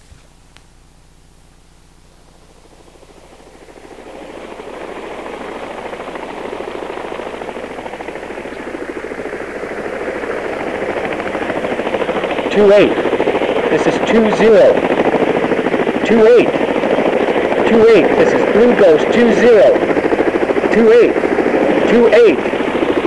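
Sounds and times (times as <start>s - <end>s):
helicopter rotor chop: 2.2s - 23.0s.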